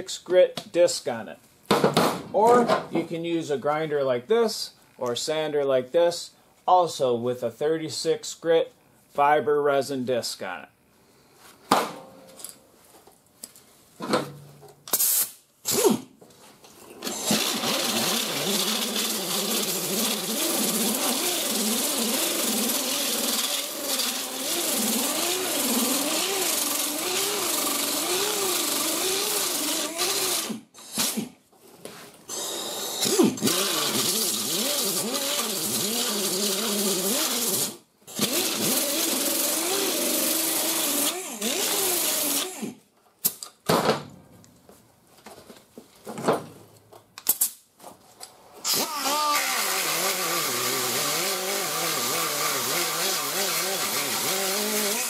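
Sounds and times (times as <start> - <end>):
grinder grinding metal: 17.0 - 30.5, 32.3 - 42.5, 48.7 - 55.0.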